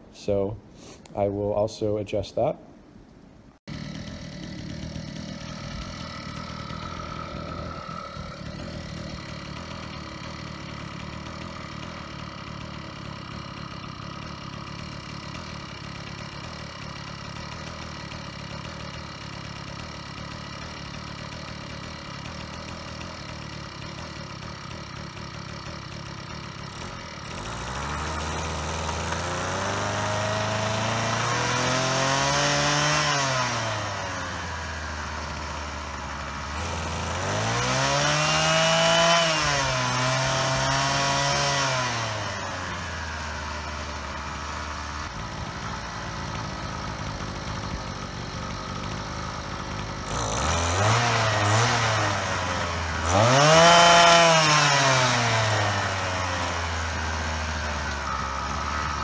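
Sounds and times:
small gas engine idling and revving: 0:03.6 - 0:59.0.

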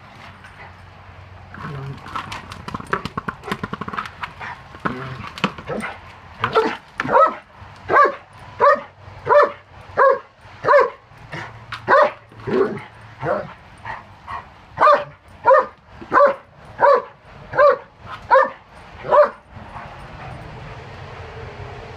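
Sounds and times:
dog barking: 0:06.5 - 0:11.0, 0:11.9 - 0:13.5, 0:14.8 - 0:19.9.

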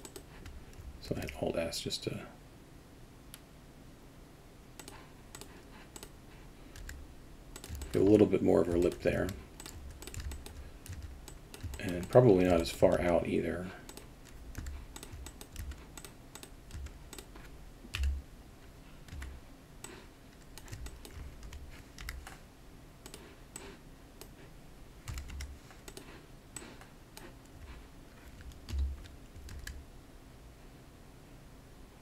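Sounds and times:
keyboard and mouse clicking: 0:00.0 - 0:01.4, 0:04.8 - 0:06.1, 0:06.7 - 0:13.2, 0:13.9 - 0:18.2, 0:19.0 - 0:22.4, 0:23.0 - 0:24.4, 0:25.0 - 0:29.8.

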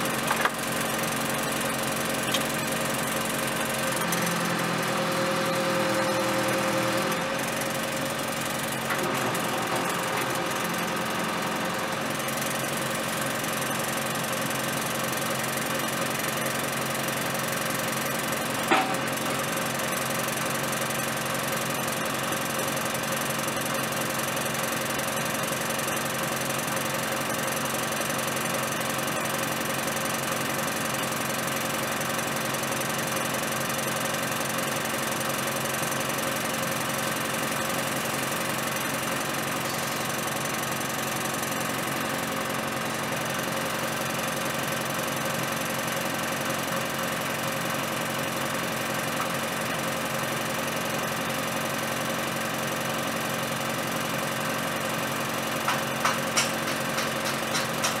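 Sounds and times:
diesel engine idling: 0:00.0 - 0:27.2
sharp metal clank: 0:18.6 - 0:19.2.

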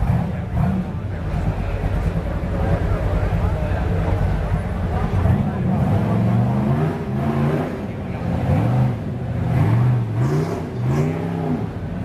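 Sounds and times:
engine revving under load: 0:00.0 - 0:02.1, 0:05.0 - 0:12.0.

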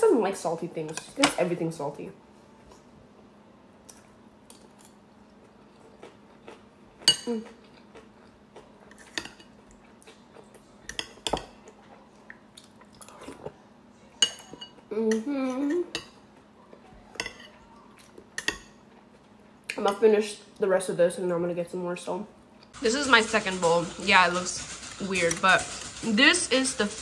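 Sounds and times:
person humming mmm: 0:07.2 - 0:07.6, 0:14.9 - 0:15.9.

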